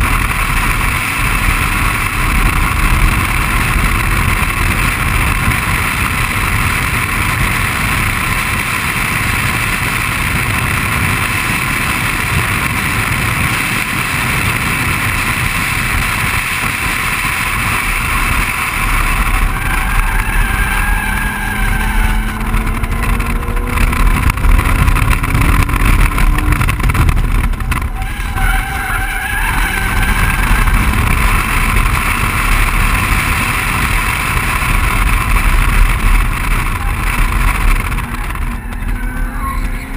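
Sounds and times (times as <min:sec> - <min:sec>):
car engine pulling hard: 0:00.0 - 0:39.9
road and wind noise: 0:00.0 - 0:39.9
tyres squealing: 0:19.3 - 0:23.5, 0:27.8 - 0:30.9, 0:38.0 - 0:39.9.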